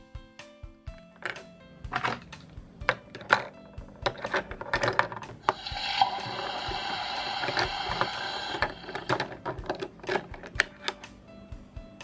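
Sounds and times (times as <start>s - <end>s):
plastic toy dishes clattering: 1.1s - 5.5s, 7.4s - 11.0s.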